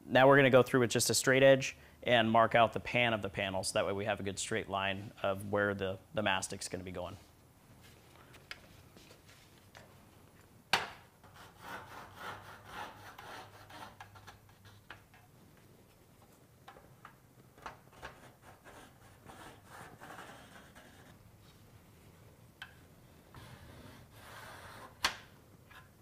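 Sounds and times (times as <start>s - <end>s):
marker scratching on metal: 11.2s - 14.9s, 17.9s - 21.2s.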